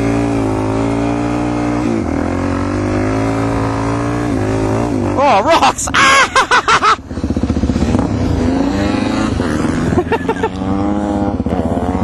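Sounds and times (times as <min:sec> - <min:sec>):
motorcycle engine running: 0:00.0 - 0:12.0
person shouting: 0:05.2 - 0:06.3.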